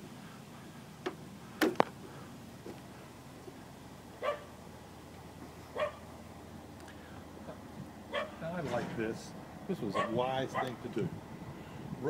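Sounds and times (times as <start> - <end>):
dog barking: 4.2 - 4.5, 5.8 - 6.0, 8.1 - 8.4, 9.9 - 10.8.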